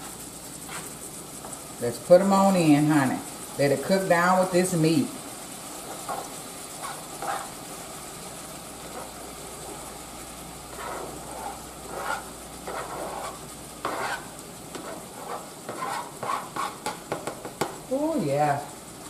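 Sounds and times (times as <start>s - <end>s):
meat sizzling in a skillet: 0.0s - 19.0s
knife scraping cutting board: 0.6s - 1.0s, 5.9s - 7.5s, 10.7s - 17.0s.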